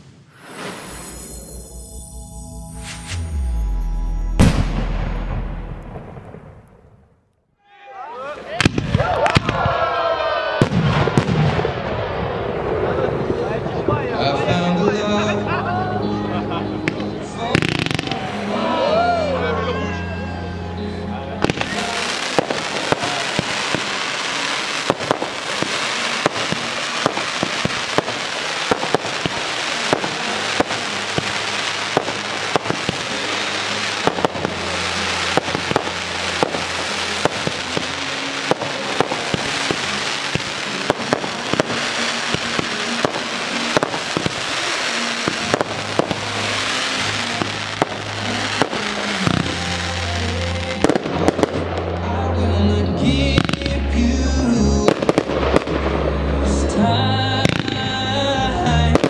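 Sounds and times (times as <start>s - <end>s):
fireworks crackling: 0.0s - 7.2s, 8.3s - 9.8s, 10.5s - 19.7s, 20.8s - 59.0s
fireworks pops and bangs: 8.6s - 9.7s, 10.6s - 12.0s, 21.4s - 51.9s, 53.3s - 53.8s, 54.9s - 55.9s, 57.4s - 57.9s
music with low bass notes: 45.5s - 59.0s.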